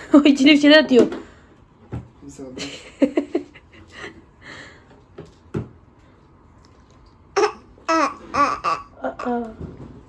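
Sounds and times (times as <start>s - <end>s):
young child vocalizing: 7.4s - 9.7s.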